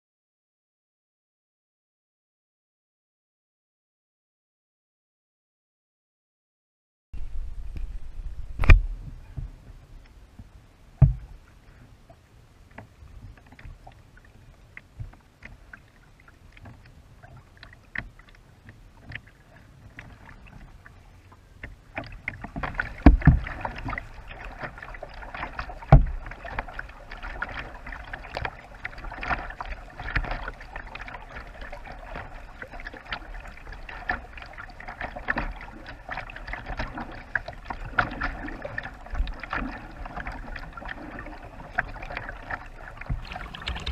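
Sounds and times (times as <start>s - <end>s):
water rushing along a bow: 7.2s - 43.9s
paddle drips and clicks: 12.1s - 43.9s.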